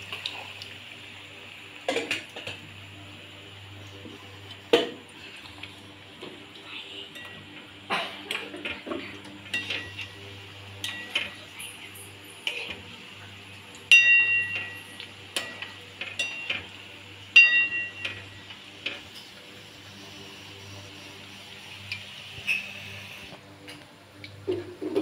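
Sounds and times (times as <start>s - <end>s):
oil sizzling: 0.0s - 23.4s
metal spoon clinking in pan: 10.8s - 11.4s, 13.9s - 16.6s, 17.4s - 18.3s
pan ringing: 13.9s - 15.6s, 17.3s - 18.5s.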